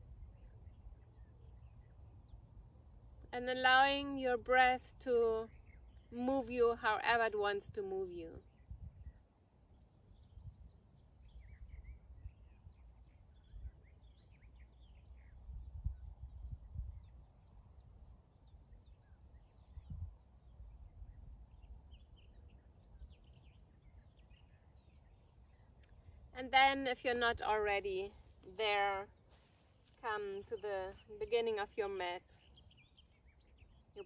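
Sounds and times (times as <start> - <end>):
wind rumble on microphone: 0.0 - 25.6
faint bird chirps: 8.2 - 26.4.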